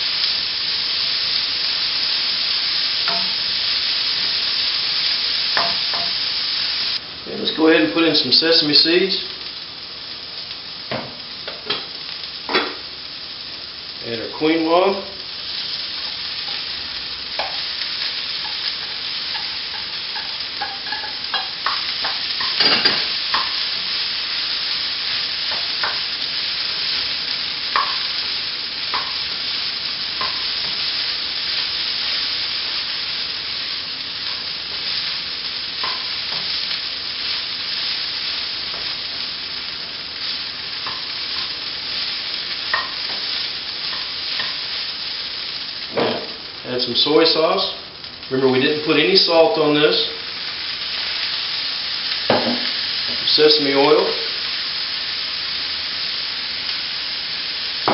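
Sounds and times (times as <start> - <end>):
vegetables sizzling in a pan: 0.0 - 57.9
spatula scraping a pan: 18.4 - 23.6.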